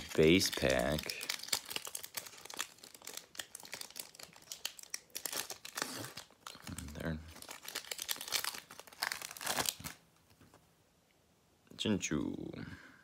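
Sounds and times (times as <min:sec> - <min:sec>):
foil wrapper crinkling and tearing: 0:00.0 - 0:10.0.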